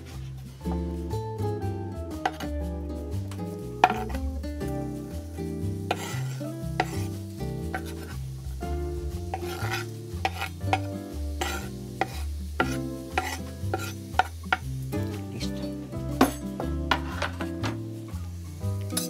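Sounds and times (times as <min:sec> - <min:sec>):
background music with bass line: 0:00.0 - 0:19.0
onion sizzling in oil: 0:00.0 - 0:19.0
spatula scraping pan: 0:03.8 - 0:04.2, 0:05.8 - 0:08.2, 0:09.3 - 0:14.6.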